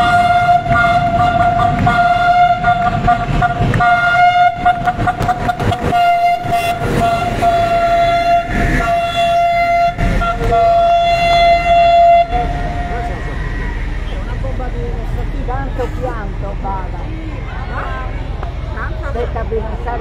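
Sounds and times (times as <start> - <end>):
diesel locomotive horn: 0.0 - 15.1
train wheels rumbling and clattering: 0.0 - 20.0.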